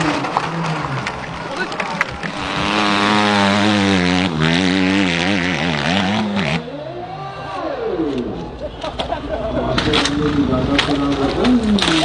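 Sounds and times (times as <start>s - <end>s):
dirt bike engine revving: 2.1s - 6.9s.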